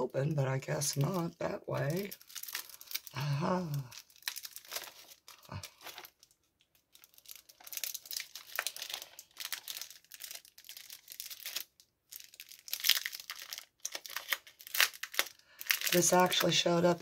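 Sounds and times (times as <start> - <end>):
plastic packaging crinkling: 0.1 - 17.0.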